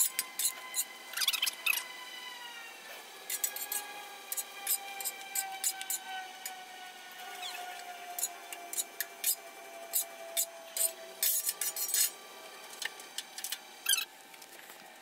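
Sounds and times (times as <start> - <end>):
metal spatula scraping griddle: 3.2 - 6.0, 8.2 - 12.2.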